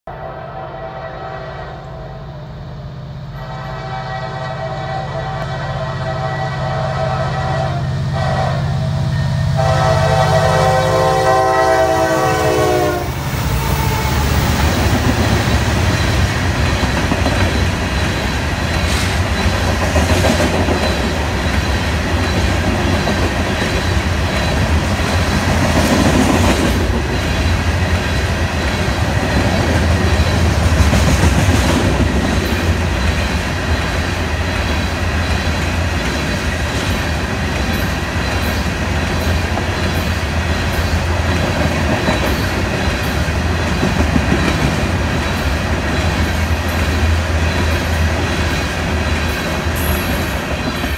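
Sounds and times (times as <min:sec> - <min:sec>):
locomotive horn chord: 0:00.1 - 0:02.5, 0:03.3 - 0:14.3
train wheels clattering on rail: 0:13.4 - 0:50.9.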